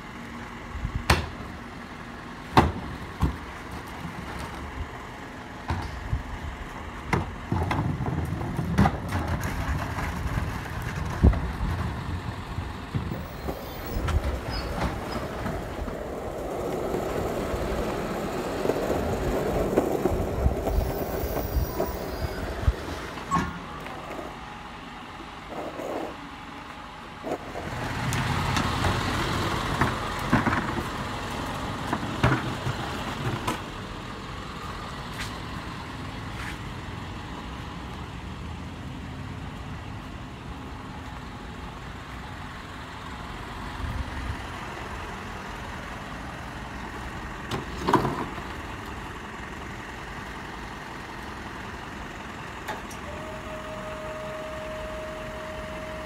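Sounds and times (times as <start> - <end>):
truck engine running: 0.0 - 39.0, 39.6 - 56.0.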